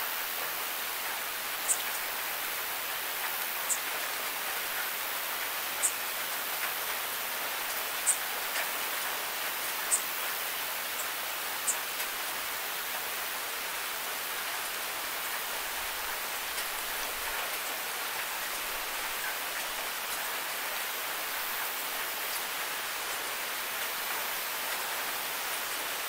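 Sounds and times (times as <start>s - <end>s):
steady rain hiss: 0.0s - 26.0s.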